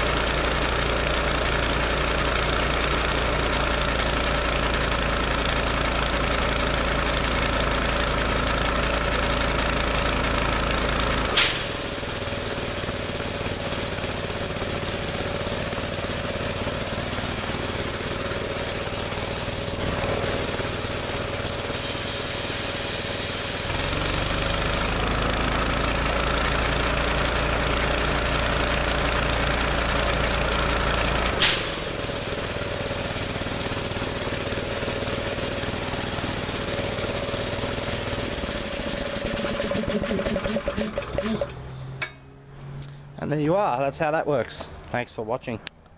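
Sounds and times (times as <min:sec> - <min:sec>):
air compressor engine running: 0:00.0 - 0:42.3
sharp pop of air: 0:11.4 - 0:11.9, 0:31.4 - 0:31.9
air hissing: 0:11.4 - 0:14.0, 0:16.5 - 0:25.0, 0:31.4 - 0:36.2.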